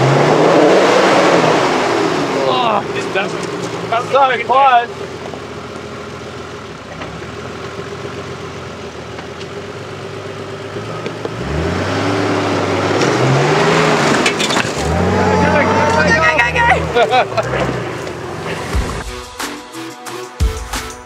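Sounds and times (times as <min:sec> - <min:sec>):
engine revving: 0:00.0 - 0:19.1
tyres scrabbling through dirt: 0:10.8 - 0:19.0.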